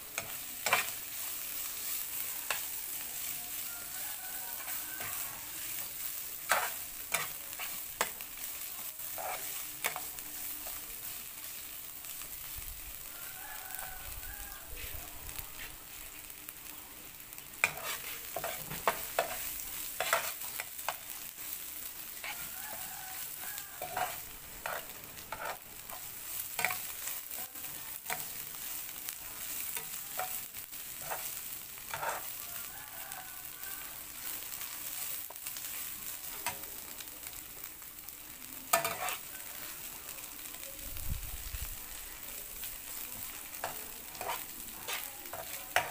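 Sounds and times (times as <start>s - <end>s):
fish sizzling in a frying pan: 0.0s - 45.9s
metal spatula scraping a pan: 0.1s - 10.8s, 17.6s - 21.1s, 22.1s - 27.4s, 28.0s - 32.4s, 38.7s - 39.4s, 43.5s - 45.9s.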